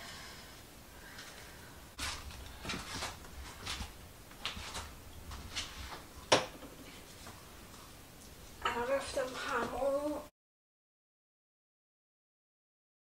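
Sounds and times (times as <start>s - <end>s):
small items rustling and scraping: 2.0s - 10.0s.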